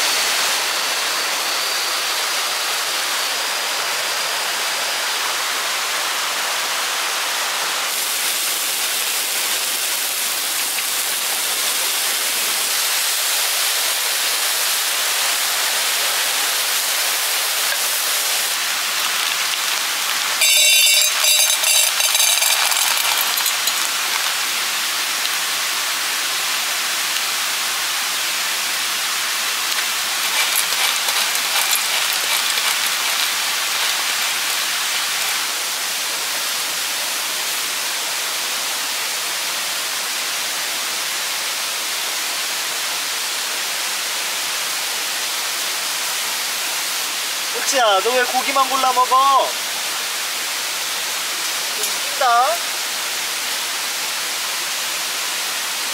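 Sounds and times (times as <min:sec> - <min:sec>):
waterfall rushing: 0:21.2 - 0:39.0, 0:47.0 - 0:50.1
crackling burst: 0:29.5 - 0:35.8.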